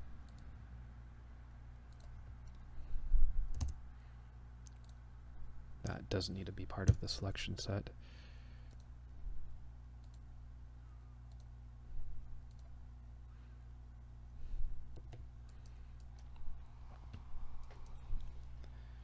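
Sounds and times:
low electrical hum: 0.0s - 19.0s
computer mouse clicks: 0.2s - 0.5s, 1.9s - 2.7s, 3.5s - 3.8s, 4.6s - 5.0s, 8.7s - 8.9s, 10.0s - 10.2s, 11.3s - 11.5s, 12.4s - 12.8s, 14.9s - 18.7s.

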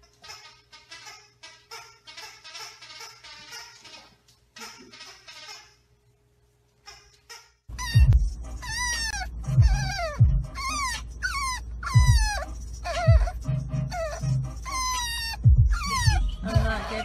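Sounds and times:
puppy whining: 6.9s - 17.0s.

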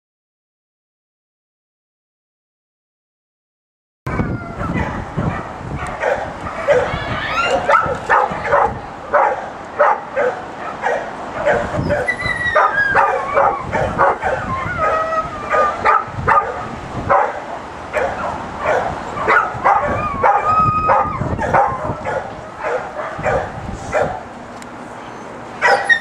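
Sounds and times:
dog barking in sharp yaps: 4.6s - 17.4s, 25.6s - 26.0s.

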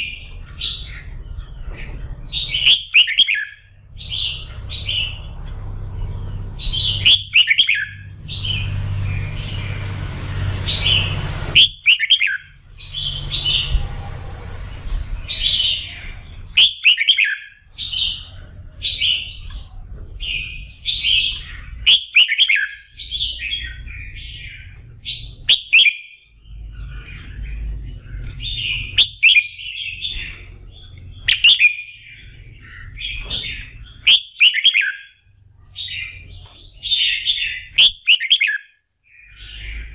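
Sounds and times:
low background rumble: 0.0s - 21.9s, 22.7s - 34.1s
bird singing whistled phrases: 2.6s - 5.2s, 6.8s - 8.6s, 10.9s - 13.7s, 16.5s - 18.1s, 20.5s - 23.8s, 25.2s - 26.2s, 31.2s - 32.1s, 34.0s - 35.2s, 36.9s - 39.9s.

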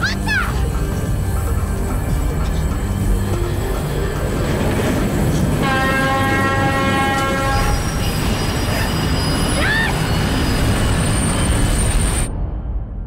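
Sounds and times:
train rumbling past: 0.2s - 13.0s
train horn: 5.6s - 8.1s
high-pitched wheel squeal: 7.1s - 12.3s.

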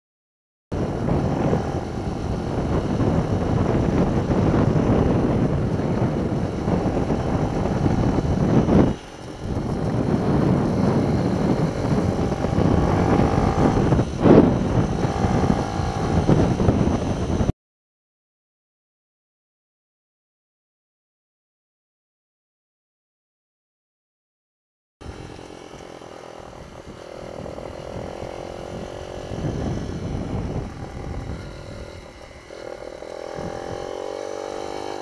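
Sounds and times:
motorbike engine running: 0.7s - 17.5s, 25.0s - 35.0s
wind and road noise: 0.7s - 17.5s, 25.0s - 35.0s.

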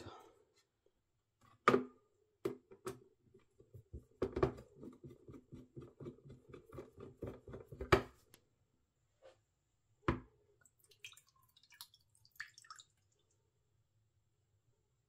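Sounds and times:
water trickling into metal tank: 10.6s - 13.5s.

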